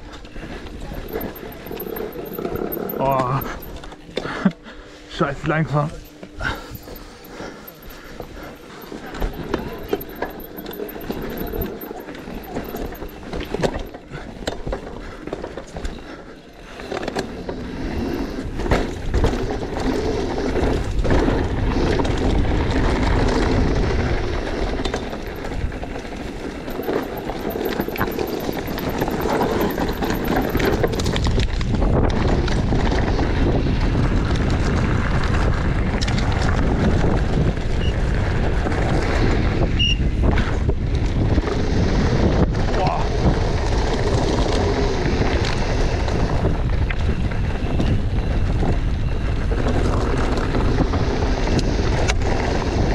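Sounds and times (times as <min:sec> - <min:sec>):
wind rush on microphone: 0:28.6 - 0:52.9.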